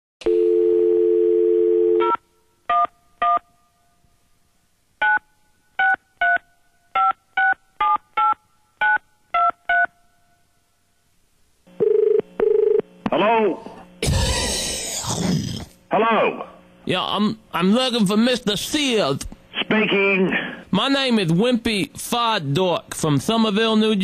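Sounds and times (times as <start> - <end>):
telephone ringback tone: 0.2 - 2.2, 11.8 - 12.8.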